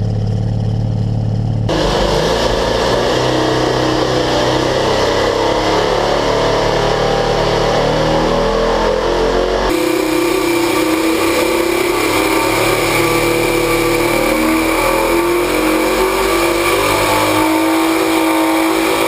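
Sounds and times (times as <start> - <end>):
deep exhaust note: 0.0 - 19.0
rotary engine running: 9.7 - 19.0.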